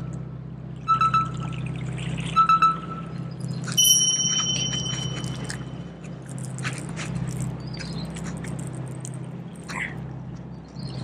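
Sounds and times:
reel spool whine: 0:03.7 - 0:05.9
short high chirp: 0:03.8 - 0:05.9.

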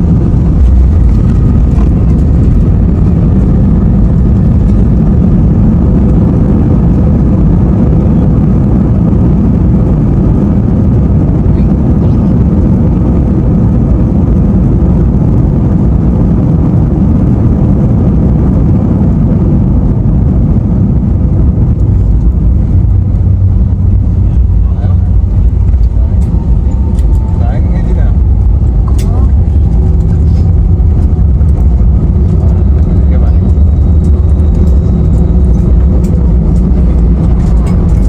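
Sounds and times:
jet engines and wheels rumbling: 0:00.0 - 0:38.0.

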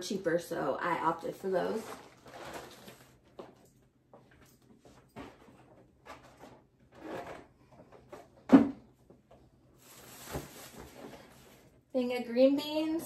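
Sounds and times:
plastic bags rustling: 0:01.5 - 0:03.4, 0:09.7 - 0:11.8.

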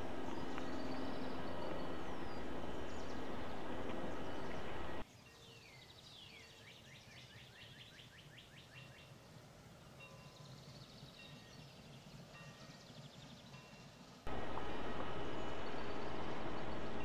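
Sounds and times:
steady loud noise: 0:00.0 - 0:05.0, 0:14.3 - 0:17.0
bird chirps: 0:00.0 - 0:09.1.

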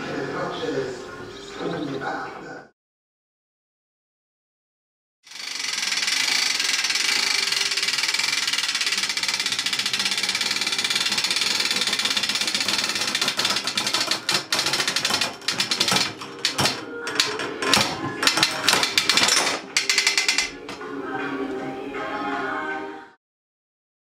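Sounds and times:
mechanical rattle: 0:05.3 - 0:20.8.

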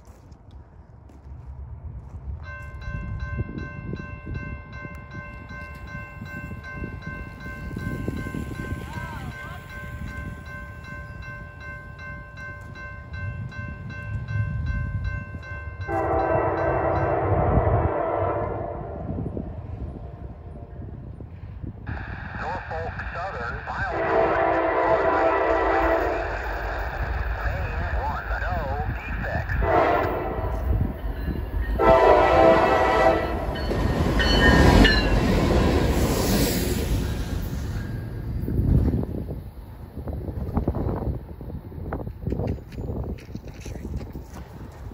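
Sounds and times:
low train rumble: 0:00.0 - 0:44.9
crossing warning bell ringing: 0:02.4 - 0:19.2, 0:23.9 - 0:41.6
locomotive horn: 0:15.9 - 0:19.2, 0:23.8 - 0:26.5, 0:29.5 - 0:30.8, 0:31.8 - 0:33.6.

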